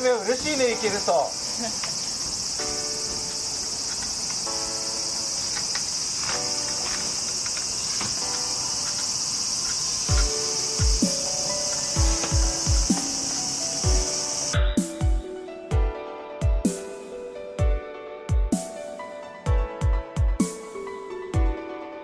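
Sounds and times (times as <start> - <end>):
high-pitched insect chorus: 0.0 - 15.6
bike wheels thumping on concrete: 5.4 - 14.2.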